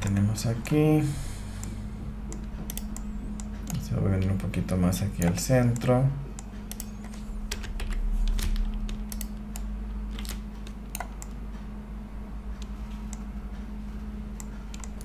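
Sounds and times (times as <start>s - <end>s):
steady low hum: 0.0s - 15.0s
keyboard and mouse clicks: 1.6s - 4.4s, 5.2s - 11.4s, 14.4s - 15.0s.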